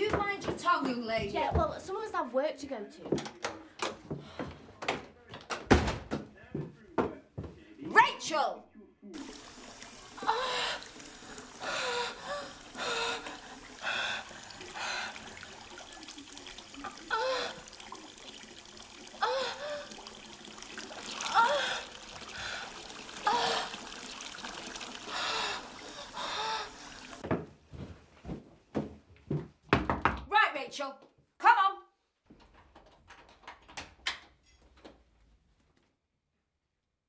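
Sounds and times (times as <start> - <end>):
water gurgle: 9.2 - 27.2
bathwater splashing and trickling: 9.2 - 27.3.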